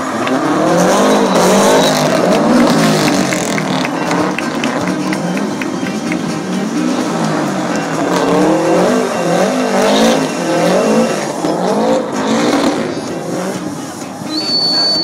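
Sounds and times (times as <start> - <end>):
car engine revving: 0.0 - 15.0
tyre squeal: 0.3 - 6.1, 8.0 - 12.9, 14.2 - 15.0.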